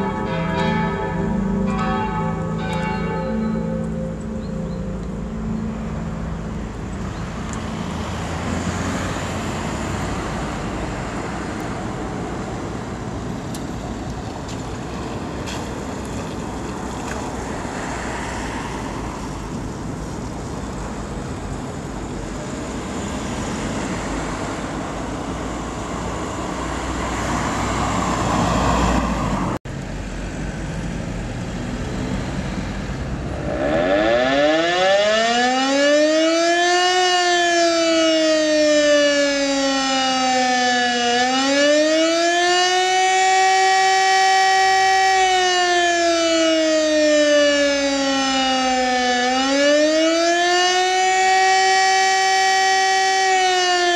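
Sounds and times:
church bells pealing: 0.0s - 8.9s
siren winding up: 33.4s - 38.1s.

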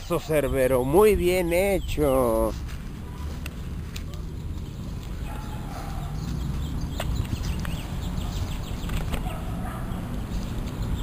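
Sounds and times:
dry leaves rustling and crackling: 2.2s - 6.6s.

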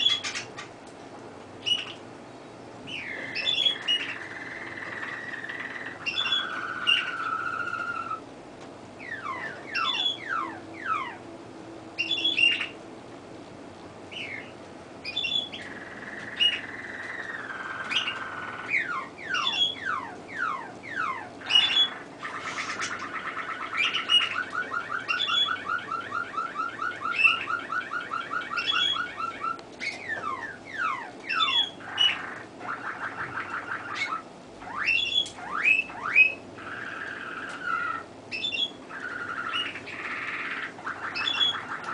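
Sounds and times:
canary singing: 0.0s - 0.8s, 1.6s - 2.2s, 2.8s - 8.3s, 9.0s - 12.9s, 14.0s - 41.9s.

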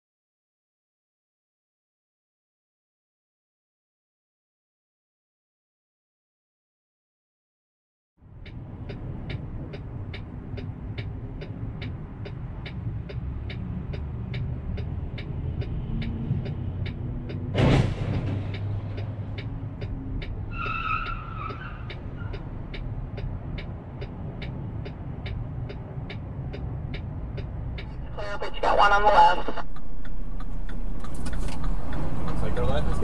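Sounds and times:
turn signal ticking: 8.2s - 17.5s, 18.1s - 33.0s.

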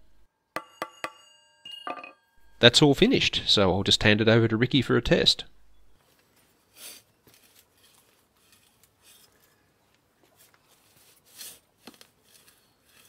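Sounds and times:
garden fork scraping into soil: 6.7s - 9.6s, 10.4s - 13.0s.

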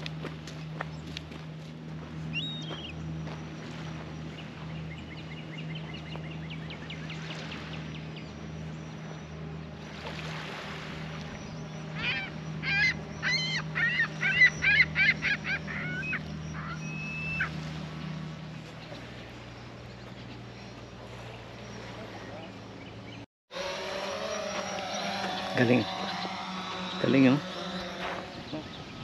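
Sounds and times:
geese honking: 11.8s - 17.6s, 23.5s - 28.9s.

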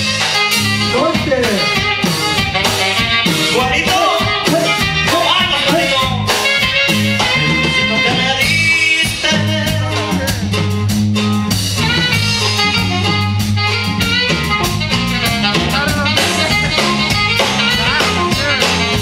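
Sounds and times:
drum kit: 0.0s - 19.0s
electric bass line: 0.0s - 19.0s
guitars: 0.0s - 19.0s.

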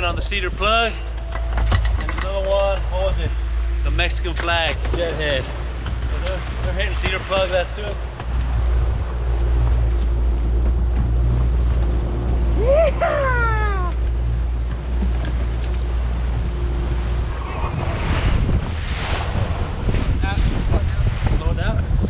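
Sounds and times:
water rushing past boat hull: 0.0s - 22.0s
wind buffeting microphone: 0.0s - 22.0s.

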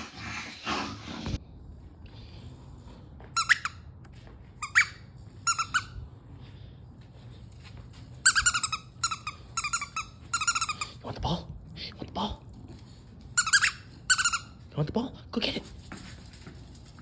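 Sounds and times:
squeaky dog toy squeaking: 3.4s - 3.8s, 4.6s - 6.0s, 8.2s - 10.9s, 13.4s - 14.7s.

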